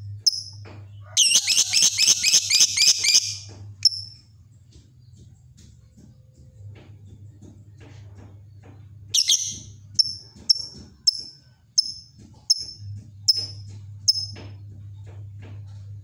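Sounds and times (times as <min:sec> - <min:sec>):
lovebird harsh call: 0:01.2 - 0:03.4
short high bird chirps: 0:09.2 - 0:10.7.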